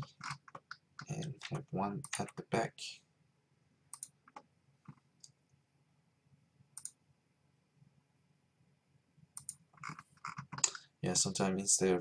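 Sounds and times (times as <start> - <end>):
computer mouse clicks: 3.9 - 5.4, 6.8 - 7.0, 9.4 - 10.8.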